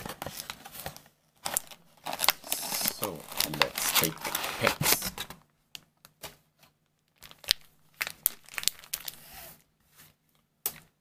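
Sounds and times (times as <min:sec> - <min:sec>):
foil wrappers crinkling: 0:00.2 - 0:05.3, 0:07.2 - 0:09.2.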